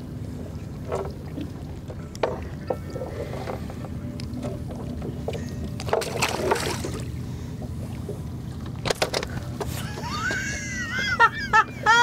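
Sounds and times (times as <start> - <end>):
boat engine rumble: 0.0 - 12.0
water splashing: 5.8 - 8.6.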